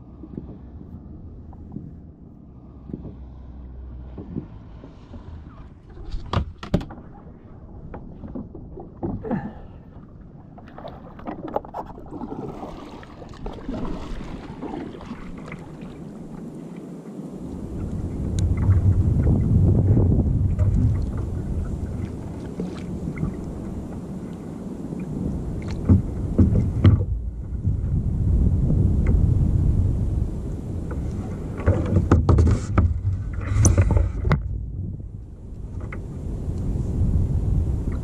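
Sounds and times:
wind buffeting microphone: 0.0s - 38.0s
water slapping: 2.6s - 16.9s, 17.8s - 28.0s
gear knocking on kayak: 25.6s - 27.2s, 31.6s - 34.6s.

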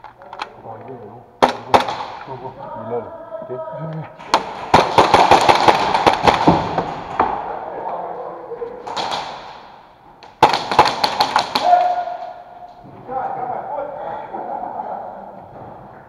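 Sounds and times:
airsoft gunfire: 1.4s - 2.3s, 4.2s - 7.6s, 8.8s - 12.2s
pellets hitting plywood: 4.2s - 7.5s, 8.9s - 12.0s.

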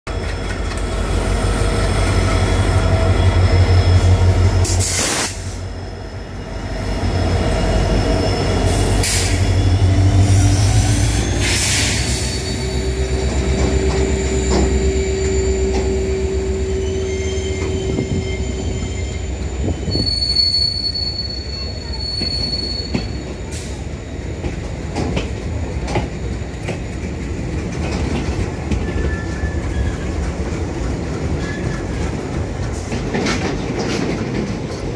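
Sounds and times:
diesel locomotive engine rumble: 0.1s - 34.9s
wheels squealing: 7.1s - 23.3s, 28.7s - 30.5s.

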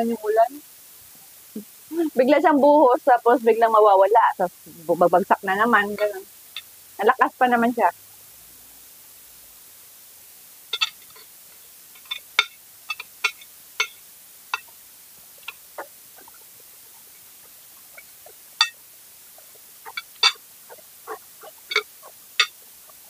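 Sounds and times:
cutlery clinking on ceramic plate: 10.8s - 11.3s, 12.0s - 14.0s, 19.9s - 20.4s, 21.7s - 22.6s.

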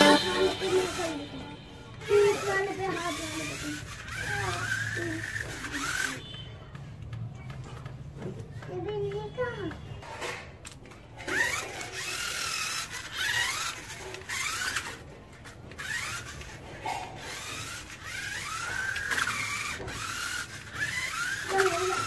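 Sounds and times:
small electric motor whining: 0.0s - 6.5s, 11.2s - 22.0s.

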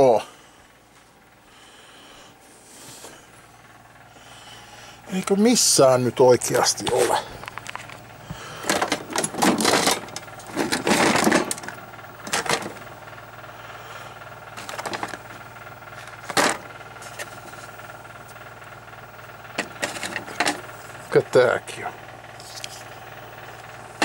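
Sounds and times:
computer parts rattling in a box: 8.6s - 12.8s, 14.6s - 15.2s, 16.0s - 16.6s.

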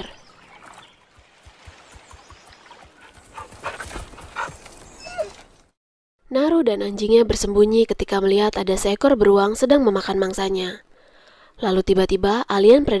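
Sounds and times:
dog whimpering: 4.9s - 5.4s.

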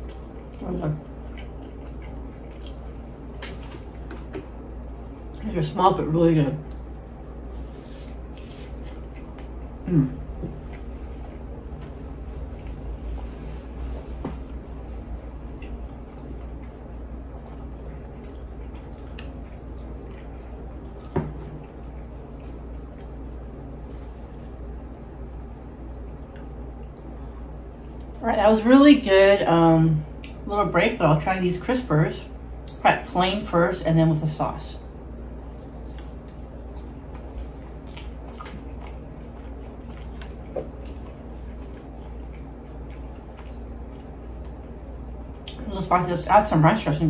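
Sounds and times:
mouth chewing wet clicks: 0.0s - 4.5s, 14.4s - 16.9s, 17.5s - 23.9s, 30.2s - 30.4s, 35.5s - 45.7s
steady low hum: 0.0s - 47.0s.

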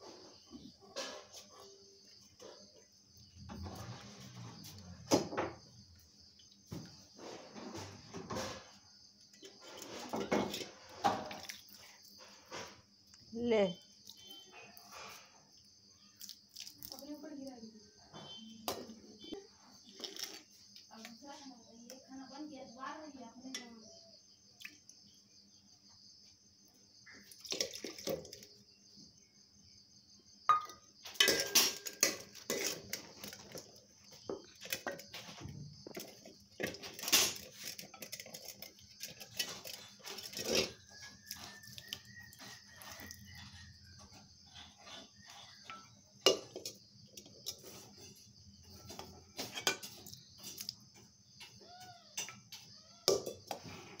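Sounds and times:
metal pots and bowls clattering: 0.5s - 2.8s, 6.8s - 11.8s, 27.2s - 28.6s, 30.5s - 50.8s, 51.4s - 54.0s.

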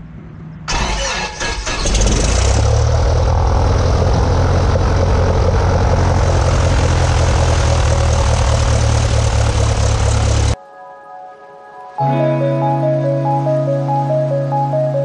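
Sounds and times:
aircraft engine starting: 0.7s - 10.6s
propeller engine idling: 1.6s - 10.6s.

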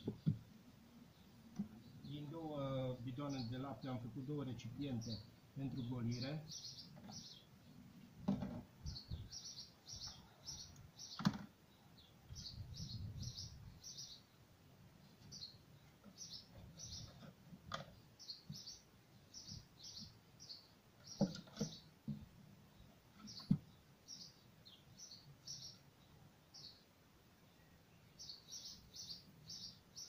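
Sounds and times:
small birds chirping: 0.0s - 30.0s
plastic container and tools knocking: 8.2s - 8.7s, 21.2s - 22.3s.

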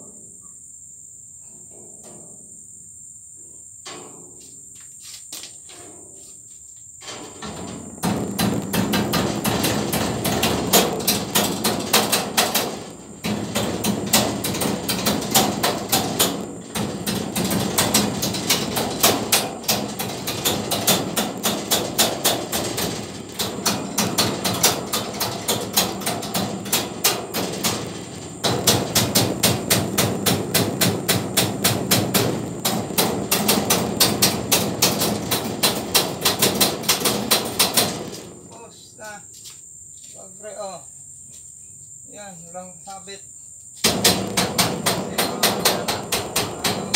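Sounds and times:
rapid hammer blows: 7.3s - 38.6s, 43.8s - 46.9s.

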